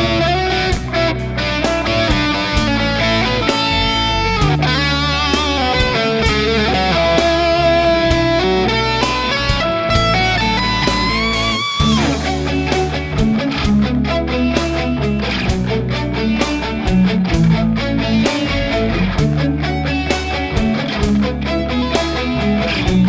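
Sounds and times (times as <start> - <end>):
electric guitar lead run: 0.0 - 23.0.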